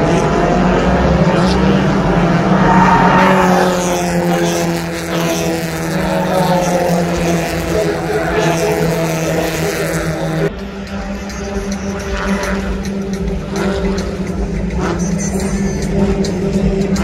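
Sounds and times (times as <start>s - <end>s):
race car engines: 0.0s - 17.0s.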